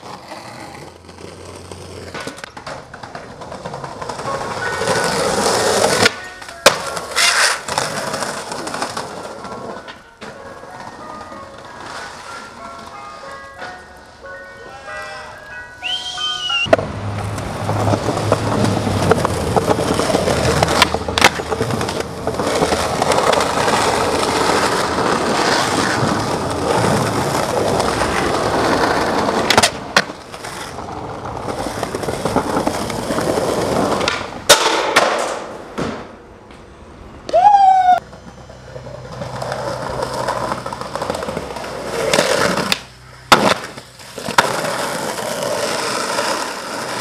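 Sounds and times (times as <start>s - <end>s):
skateboard clacks: 0.0s - 13.0s, 16.5s - 36.6s, 38.0s - 47.0s
skateboard wheels rolling on concrete: 0.0s - 47.0s.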